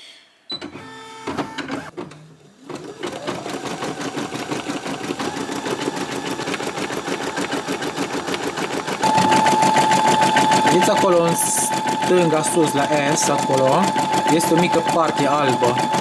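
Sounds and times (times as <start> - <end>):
embroidery machine stitching: 0.6 - 16.0
machine clicks: 4.4 - 16.0.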